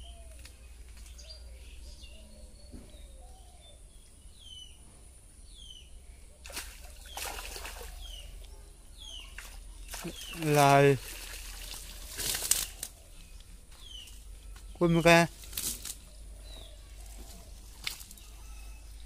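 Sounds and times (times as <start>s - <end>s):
birds calling: 0.0s - 19.0s
water streaming off cast net: 6.5s - 8.0s, 9.9s - 12.8s.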